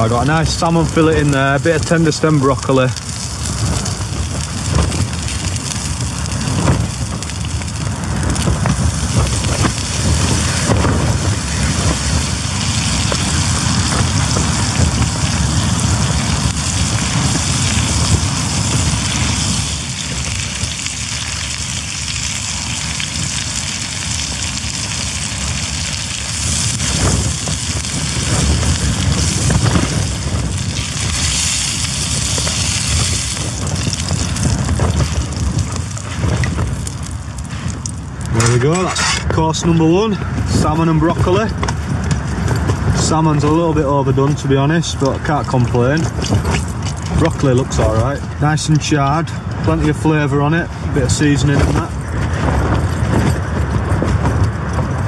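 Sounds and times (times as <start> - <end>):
food sizzling in a frying pan: 0.0 - 37.7
rain on tent fabric: 0.0 - 55.0
wind buffeting a tent: 0.0 - 55.0.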